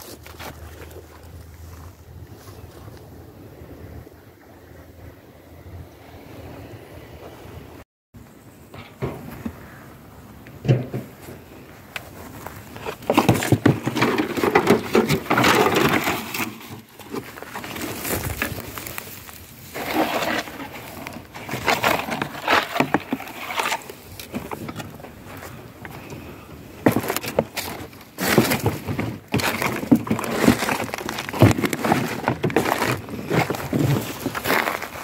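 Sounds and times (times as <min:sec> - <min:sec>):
dry grass and twigs crackling: 0:00.0 - 0:03.2, 0:09.1 - 0:35.0
scrap crunching and knocking: 0:10.5 - 0:35.0.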